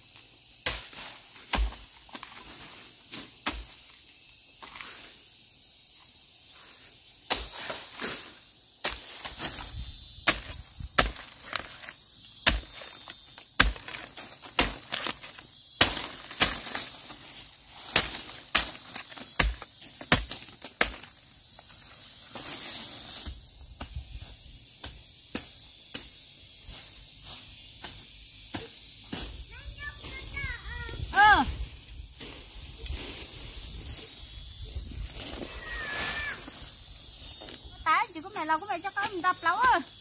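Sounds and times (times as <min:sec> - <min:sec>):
insects hissing: 0:00.0 - 0:40.0
hand tool chopping grass: 0:10.3 - 0:17.2, 0:17.8 - 0:21.1.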